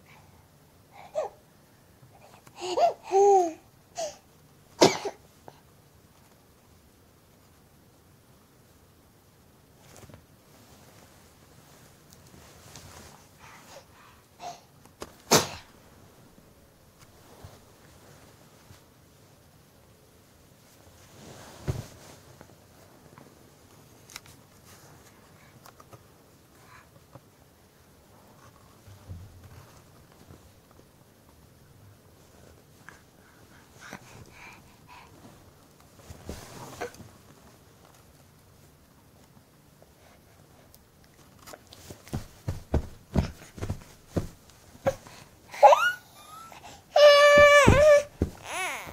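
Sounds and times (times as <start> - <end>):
faint rustling on blanket: 9.7 - 14.2, 15.0 - 40.7, 41.4 - 45.5
soft thumps: 42.0 - 45.1, 47.3 - 48.9
baby squealing: 45.6 - 48.9.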